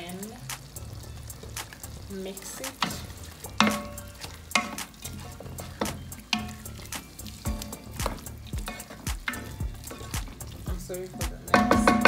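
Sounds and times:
spoon knocking metal pot: 3.6s - 5.0s, 5.8s - 6.7s, 7.5s - 10.4s, 11.3s - 12.0s.

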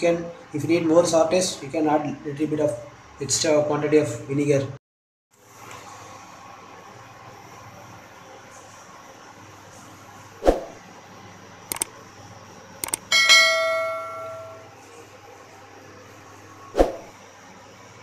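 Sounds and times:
quick double clicks: 11.7s - 11.9s, 12.8s - 13.1s
bell ding: 13.1s - 14.8s.

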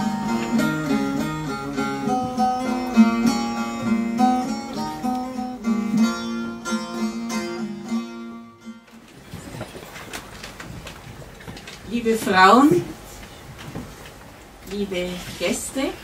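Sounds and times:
plucked string instrument melody: 0.0s - 9.1s.

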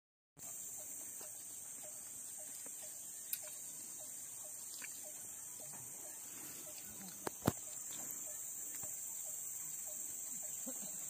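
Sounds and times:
insects shrilling: 0.4s - 11.0s.

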